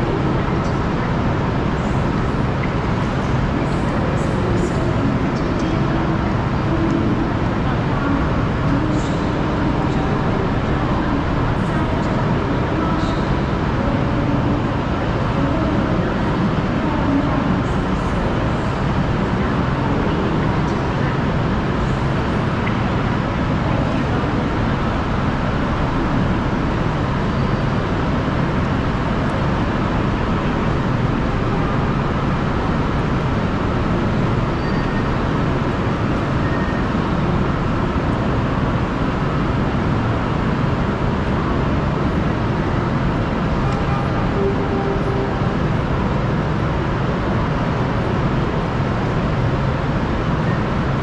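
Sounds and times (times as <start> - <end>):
traffic rumble: 0.0 - 51.0.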